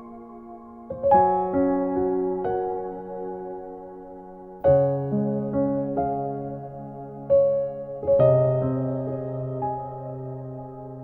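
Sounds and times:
gentle lullaby music: 0.0s - 11.0s.

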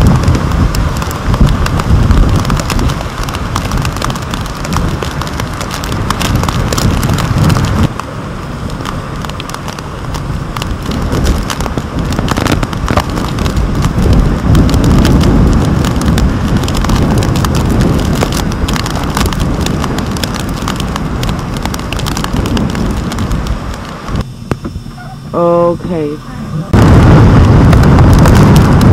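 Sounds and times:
rain tapping on housing: 0.0s - 24.2s, 26.7s - 28.9s
wind buffeting camera housing: 0.0s - 24.9s, 26.7s - 28.9s.

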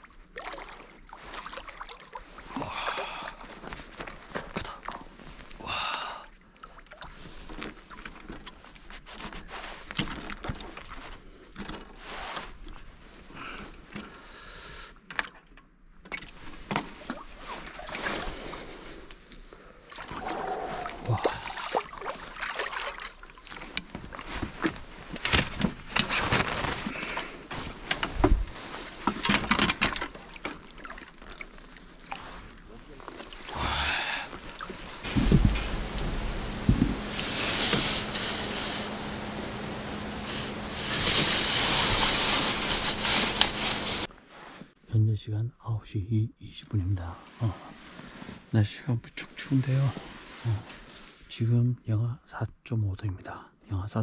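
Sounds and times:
water sloshing and dripping: 0.0s - 5.6s, 6.4s - 9.0s, 16.1s - 25.2s, 27.8s - 44.1s.

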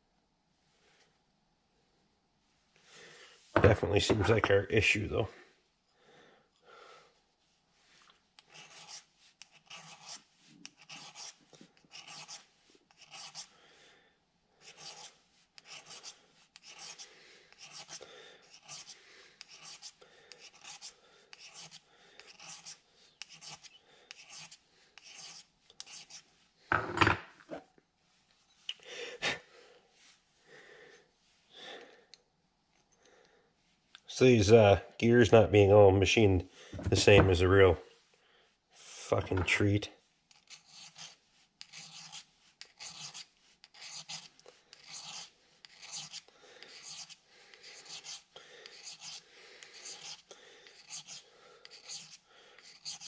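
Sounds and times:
file rasping on metal: 8.4s - 13.5s, 14.6s - 26.2s, 40.3s - 53.0s.

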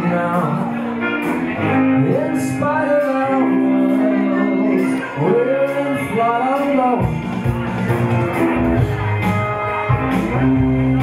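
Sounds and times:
man singing: 0.0s - 7.4s
electric guitar: 0.0s - 11.0s.

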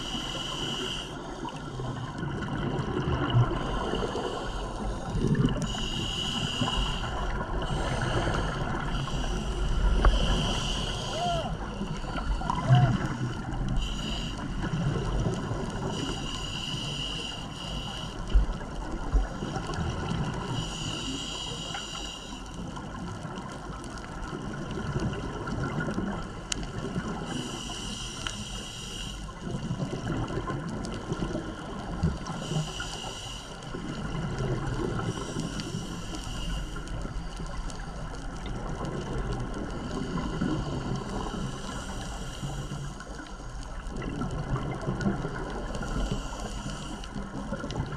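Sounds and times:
high hissing regulator breath: 0.0s - 2.1s, 3.6s - 14.7s, 15.8s - 18.5s, 20.5s - 22.6s, 27.2s - 29.4s, 32.3s - 33.7s, 35.0s - 37.4s, 39.8s - 43.0s, 45.7s - 47.2s
bubbling rumble of exhaled air: 0.0s - 16.3s, 18.2s - 21.2s, 22.6s - 28.2s, 29.3s - 47.9s.

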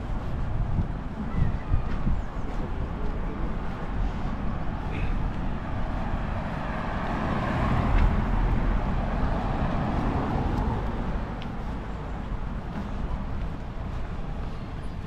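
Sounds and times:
road traffic: 0.0s - 15.0s
vehicle passing close by: 5.6s - 11.4s.

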